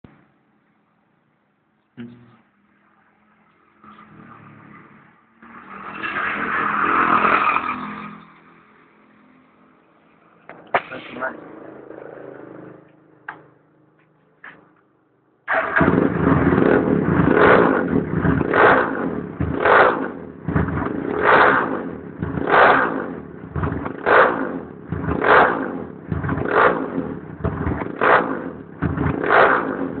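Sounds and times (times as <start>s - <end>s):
motorcycle engine revving: 10.6s - 13.6s, 15.5s - 30.0s.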